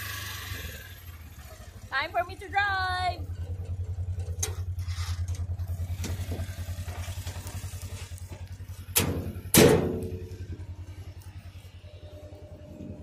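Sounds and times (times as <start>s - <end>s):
utility vehicle engine idling: 0.0s - 13.0s
loud thumps: 8.9s - 10.2s.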